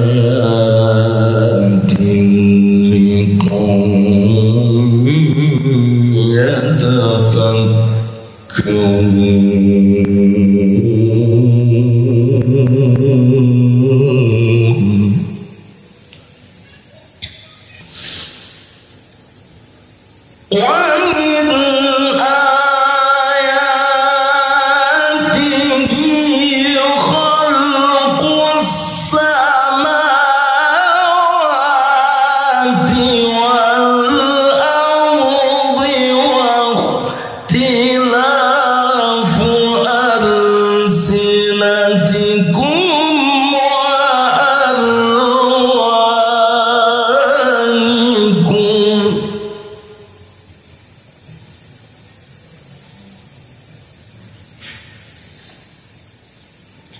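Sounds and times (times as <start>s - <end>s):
man reciting melodically: 0.0s - 15.6s, 20.5s - 50.2s.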